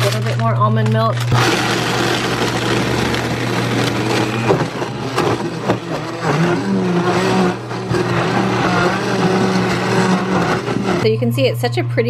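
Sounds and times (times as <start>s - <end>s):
blender motor crushing ice: 0.0s - 11.1s.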